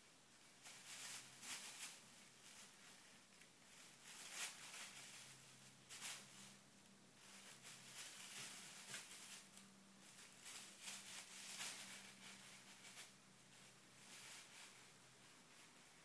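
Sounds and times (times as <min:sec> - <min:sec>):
plastic bag crinkling: 0:00.6 - 0:06.6, 0:07.2 - 0:16.0.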